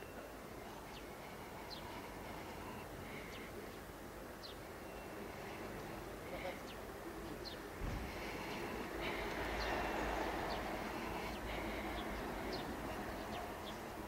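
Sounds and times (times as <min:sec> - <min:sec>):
distant vehicle rumble: 0:04.7 - 0:14.0.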